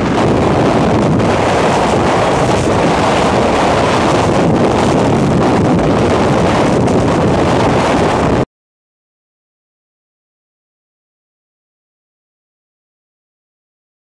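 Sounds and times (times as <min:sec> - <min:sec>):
strong wind buffeting microphone: 0:00.0 - 0:08.5.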